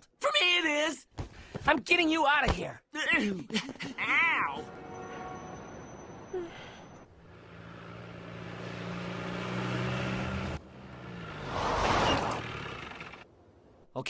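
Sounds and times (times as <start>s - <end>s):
car tyre skid: 11.3s - 13.2s.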